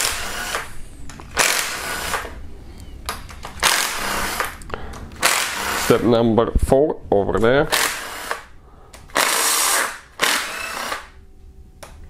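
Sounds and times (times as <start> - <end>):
power tool spinning bolts: 0.0 - 2.4, 3.6 - 4.6, 5.2 - 6.0, 9.1 - 11.1.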